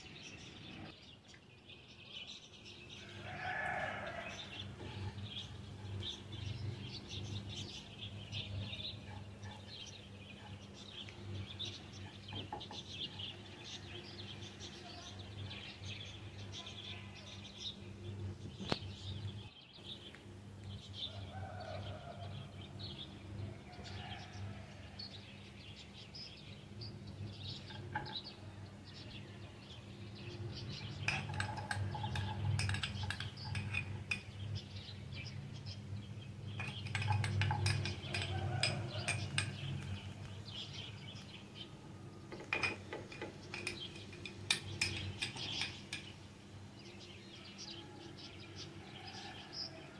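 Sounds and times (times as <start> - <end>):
vegetables clinking against pan: 36.6 - 40.3.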